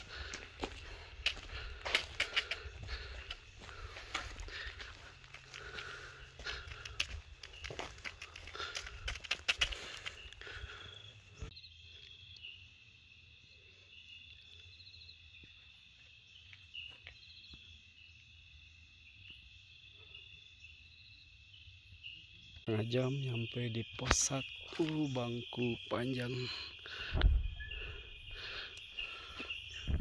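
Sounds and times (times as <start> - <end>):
night insects trilling: 0.0 - 30.0.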